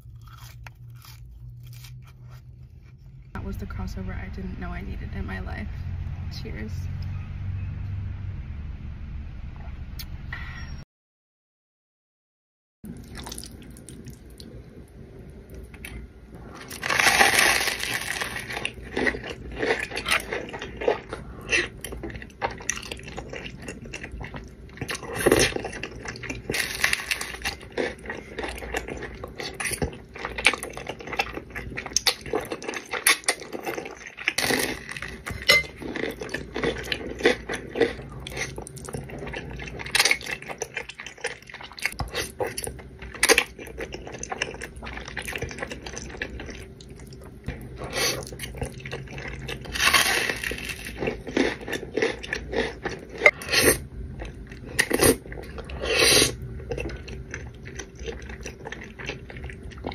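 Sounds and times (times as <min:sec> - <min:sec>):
wet chewing and slurping: 0:13.0 - 0:14.6, 0:15.5 - 0:59.9.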